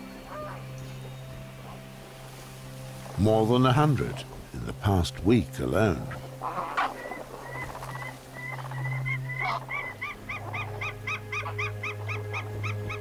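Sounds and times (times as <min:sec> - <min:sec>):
eagle yelping calls: 0:00.3 - 0:00.7, 0:06.1 - 0:13.0.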